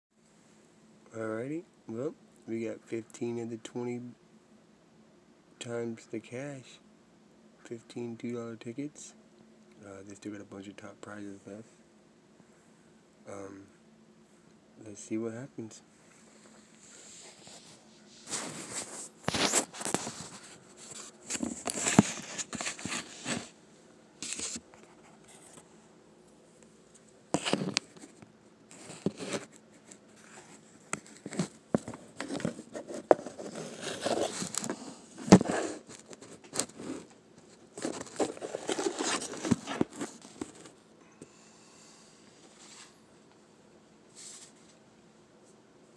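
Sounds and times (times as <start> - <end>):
paper tickets crinkling and scraping: 32.0 - 37.1, 37.8 - 40.7.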